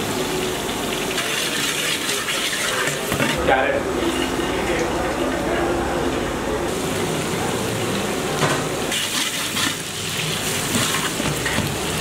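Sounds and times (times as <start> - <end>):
vegetables sizzling in oil: 8.8 - 12.0.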